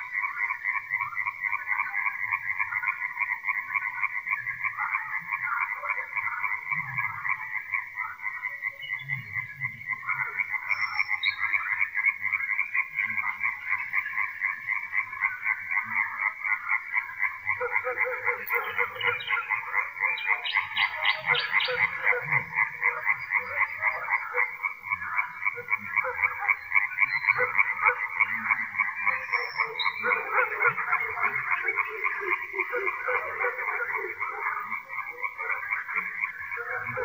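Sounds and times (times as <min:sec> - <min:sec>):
chorus of frogs croaking: 0:00.0 - 0:37.0
deep frog croak: 0:00.0 - 0:37.0
nightingale singing: 0:10.5 - 0:11.8, 0:17.8 - 0:24.6, 0:25.2 - 0:32.4.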